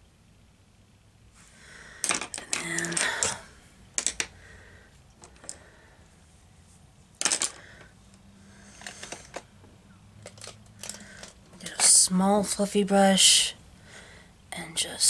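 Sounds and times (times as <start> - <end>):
makeup tools clicking and tapping: 2.0 - 3.4, 4.0 - 4.4.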